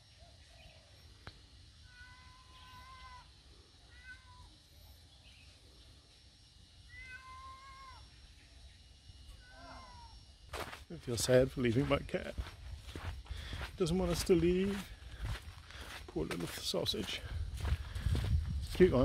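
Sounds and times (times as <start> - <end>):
cat meowing faintly: 1.9 - 3.3, 3.9 - 4.6, 6.9 - 8.1, 9.3 - 10.2.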